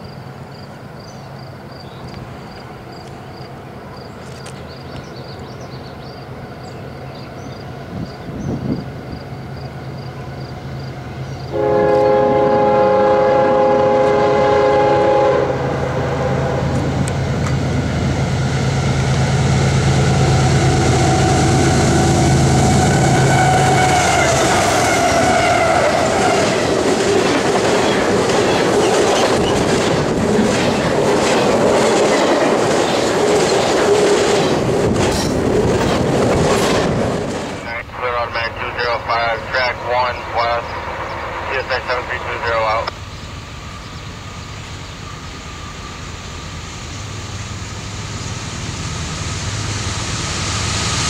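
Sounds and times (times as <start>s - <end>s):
locomotive engine running: 9.4s - 51.0s
locomotive air horn: 11.5s - 16.8s, 20.0s - 26.1s
train wheels clacking: 23.1s - 37.6s.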